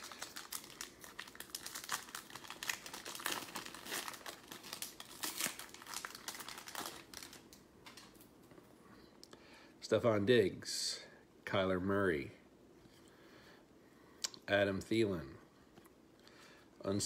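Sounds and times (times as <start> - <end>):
foil wrapper crinkling and tearing: 0.0 - 8.2.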